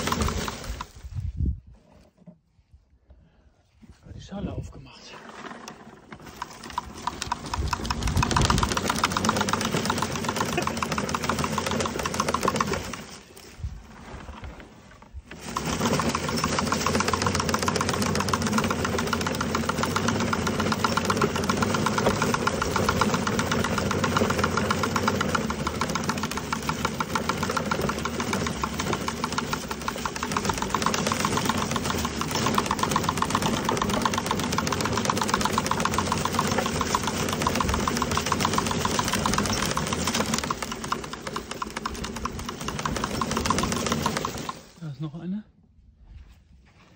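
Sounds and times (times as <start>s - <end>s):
leaf collector brush rattling: 0.0s - 1.2s, 5.1s - 14.2s, 15.3s - 45.0s.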